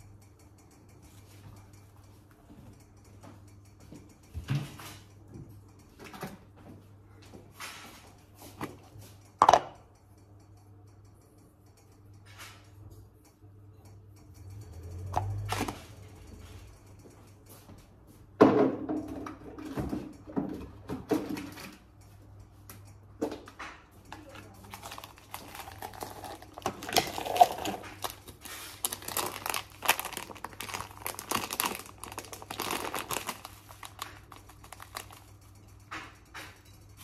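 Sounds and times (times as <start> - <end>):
plastic bag crinkling: 24.6 - 35.3.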